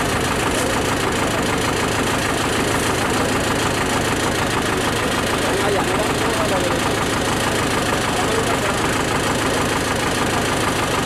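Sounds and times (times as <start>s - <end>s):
diesel engine clattering: 0.0s - 11.0s.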